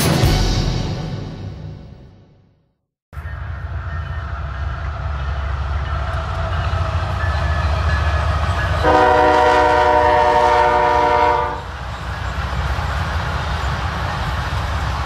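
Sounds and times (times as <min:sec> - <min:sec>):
freight train rumbling: 0:00.0 - 0:02.1, 0:03.1 - 0:15.0
locomotive horn chord: 0:08.6 - 0:11.7.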